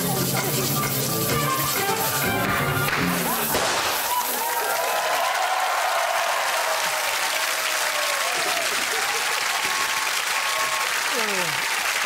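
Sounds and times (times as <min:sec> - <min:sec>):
audience applauding: 0:02.0 - 0:12.0
people whooping: 0:03.2 - 0:11.9.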